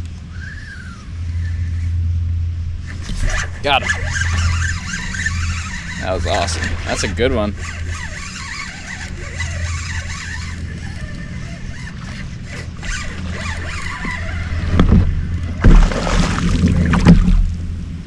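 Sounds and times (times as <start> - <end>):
fishing reel cranking: 2.8 - 14.8
loud thumps: 14.7 - 17.5.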